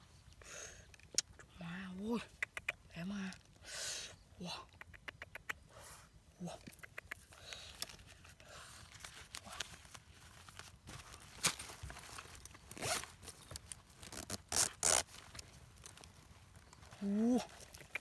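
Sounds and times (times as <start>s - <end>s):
zippers being pulled open: 12.7s - 13.0s, 14.0s - 15.1s.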